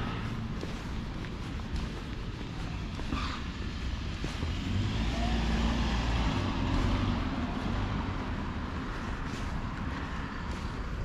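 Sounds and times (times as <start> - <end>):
vehicle engine passing by: 3.7 - 10.6.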